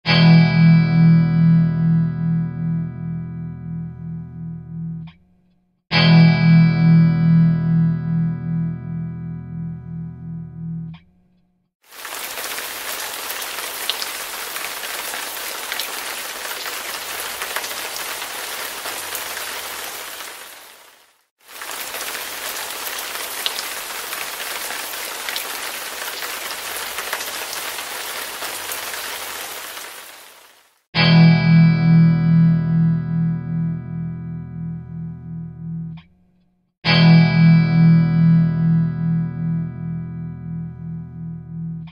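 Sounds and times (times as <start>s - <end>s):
steady rain: 11.8s - 30.9s.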